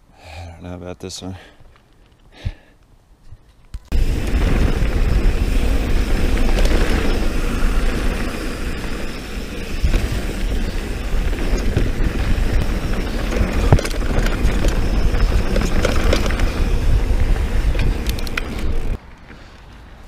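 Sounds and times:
bike rattling: 0:03.4 - 0:19.3
tyres rolling on dirt: 0:03.8 - 0:19.5
bike knocking over bumps: 0:03.9 - 0:19.0
wind on microphone: 0:03.9 - 0:19.0.

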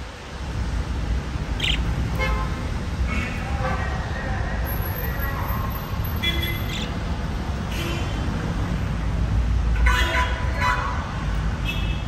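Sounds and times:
budgies chirping: 0:01.6 - 0:01.9.

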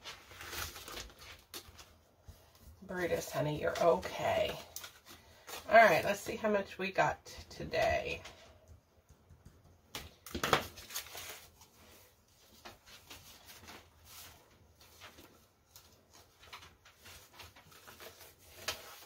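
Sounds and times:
paper banknotes rustling: 0:10.1 - 0:19.0.

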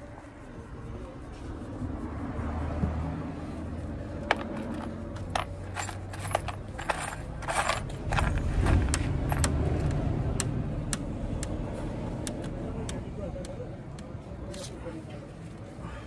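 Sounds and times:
steady low rumble: 0:03.2 - 0:14.4
metallic clicks and rattles: 0:04.2 - 0:11.6.

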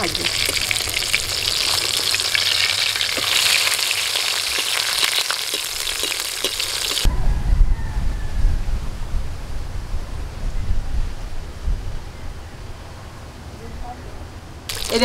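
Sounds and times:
fish sizzling in hot oil: 0:00.0 - 0:07.1, 0:14.7 - 0:15.0
oil crackling and popping: 0:00.0 - 0:07.1, 0:14.7 - 0:15.0.

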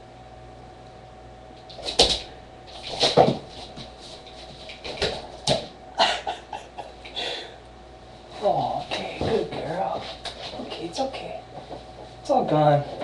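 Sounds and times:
paws scuffling: 0:01.7 - 0:05.8, 0:08.2 - 0:13.0.

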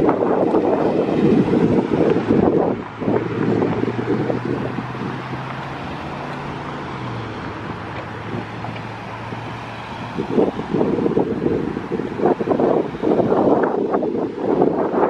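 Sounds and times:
low engine hum of vehicles: 0:00.0 - 0:15.0
traffic noise: 0:00.0 - 0:15.0
wind buffeting microphone: 0:00.0 - 0:15.0.

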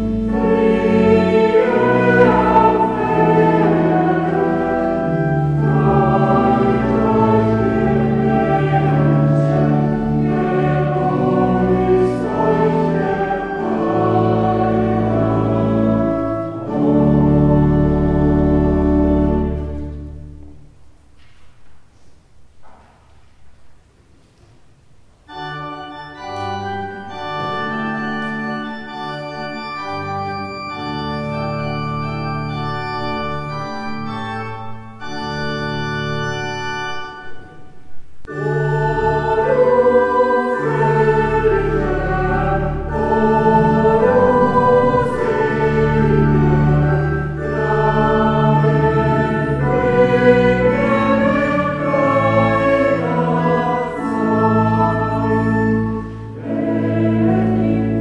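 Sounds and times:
choir singing a carol: 0:00.0 - 0:20.6, 0:25.3 - 0:58.0
church organ chords: 0:00.0 - 0:21.0, 0:25.2 - 0:58.0.

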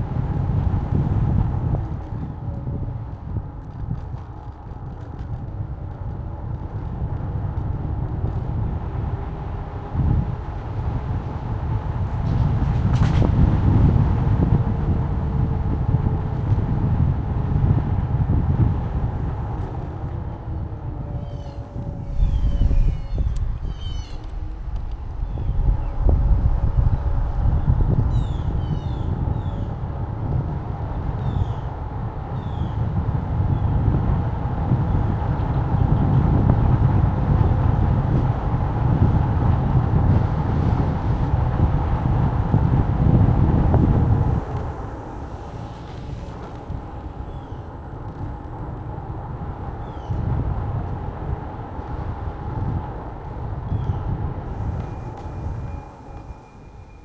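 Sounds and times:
vehicle rumble: 0:00.0 - 0:57.0
faint hum: 0:18.8 - 0:30.4.

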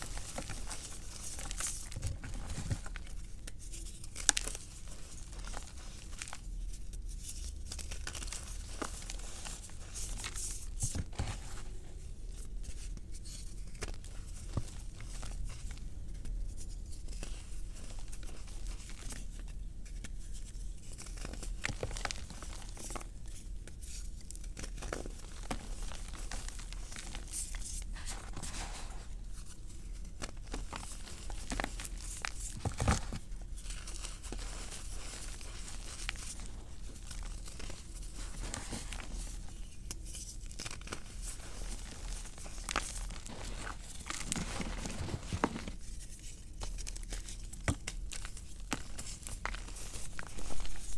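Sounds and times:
hands crushing chalk chunks: 0:19.9 - 0:50.9.

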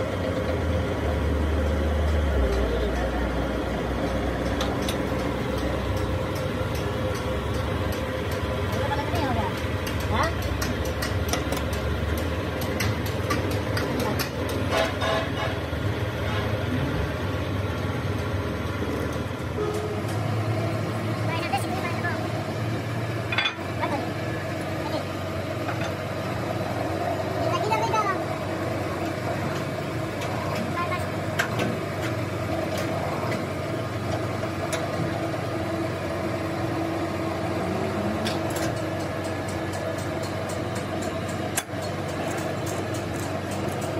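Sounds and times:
workshop machinery hum: 0:00.0 - 0:43.9
pump motor humming: 0:28.2 - 0:43.9.

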